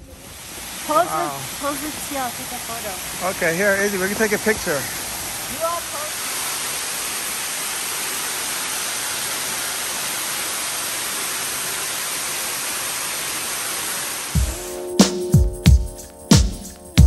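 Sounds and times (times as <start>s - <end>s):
waterfall pouring: 0.0s - 14.6s
music thumps: 14.4s - 17.0s.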